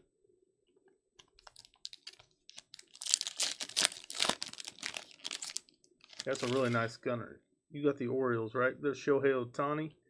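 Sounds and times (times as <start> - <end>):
foil wrapper tearing and crinkling: 1.4 - 6.8.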